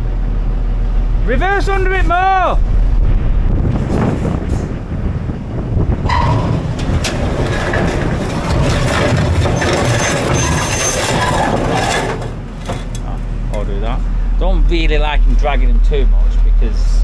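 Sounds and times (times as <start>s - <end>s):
heavy vehicle engine under load: 3.8s - 16.5s
metal bin scraping on ground: 6.1s - 12.9s
sharp metal knocks: 6.1s - 12.9s.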